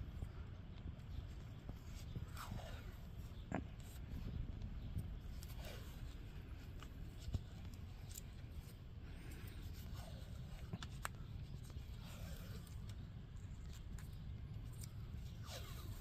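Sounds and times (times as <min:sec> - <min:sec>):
steady low rumble: 0:00.0 - 0:16.0
tape peeling and crinkling: 0:00.2 - 0:16.0.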